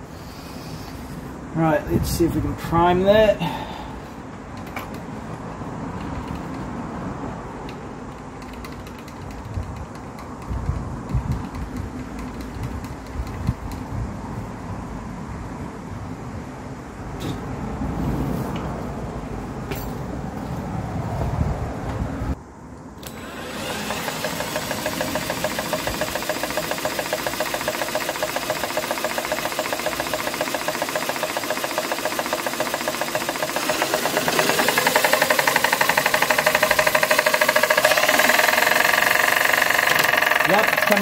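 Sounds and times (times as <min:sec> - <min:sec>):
model diesel engine running: 0:23.0 - 0:41.0.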